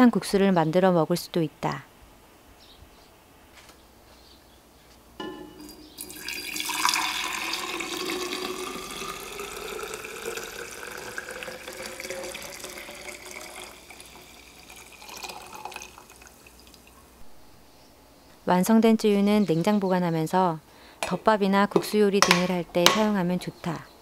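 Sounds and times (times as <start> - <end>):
broth pouring into glass jar: 5.6 - 17.0.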